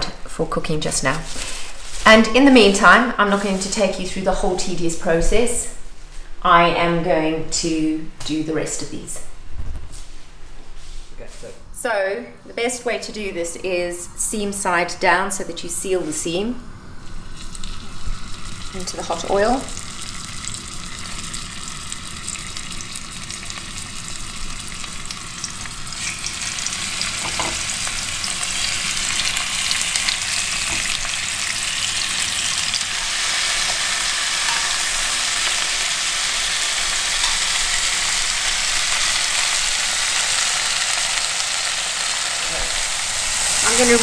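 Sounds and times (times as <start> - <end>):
meat sizzling in hot oil: 17.0 - 44.0.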